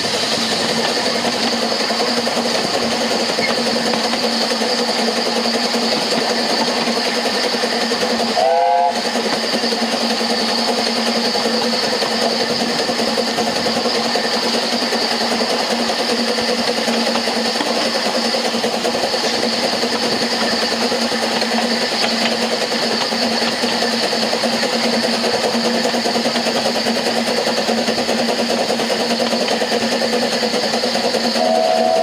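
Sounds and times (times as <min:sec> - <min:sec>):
steam train rumbling: 0:00.0 - 0:32.0
steam whistle blast: 0:08.4 - 0:09.0, 0:31.4 - 0:32.0.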